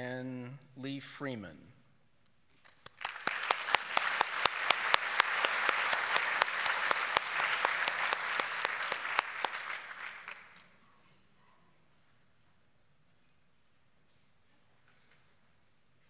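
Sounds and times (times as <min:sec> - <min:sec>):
sharp single claps: 0:02.8 - 0:10.7
audience applause: 0:02.9 - 0:10.7.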